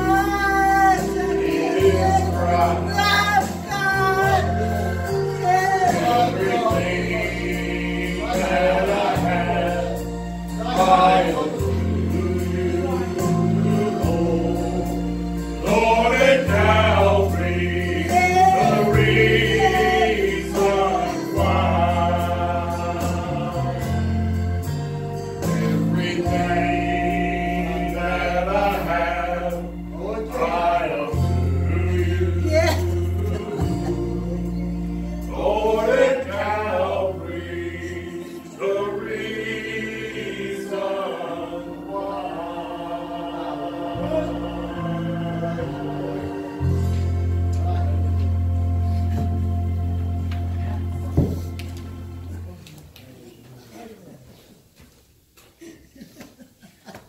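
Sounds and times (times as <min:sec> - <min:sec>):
man singing: 0:00.0 - 0:24.0, 0:25.6 - 0:34.7
choir singing gospel song: 0:00.0 - 0:52.5
instrumental accompaniment with bass: 0:00.0 - 0:52.6.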